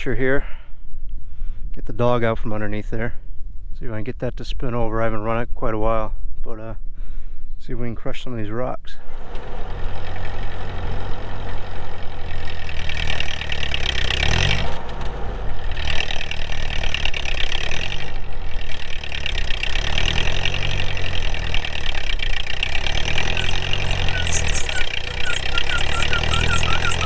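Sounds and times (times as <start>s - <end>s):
tractor engine revving: 9.0s - 27.0s.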